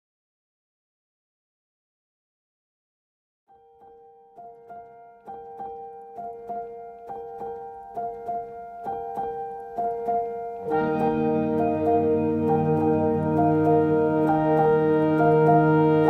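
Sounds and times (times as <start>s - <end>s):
piano music: 3.5s - 16.0s
deeper accompaniment: 10.6s - 16.0s.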